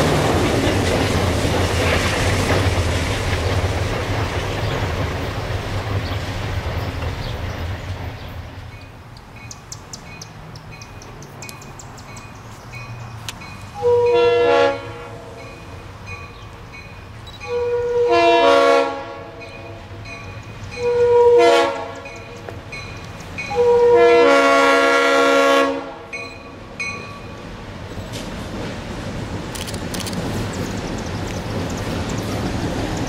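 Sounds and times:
diesel locomotive engines: 0.0s - 33.0s
train air horn blasts: 13.8s - 15.4s, 17.4s - 20.0s, 20.8s - 22.2s, 23.5s - 26.2s.

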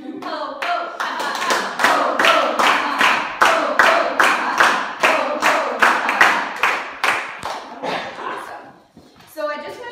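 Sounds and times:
group clapping in rhythm: 0.0s - 8.6s.

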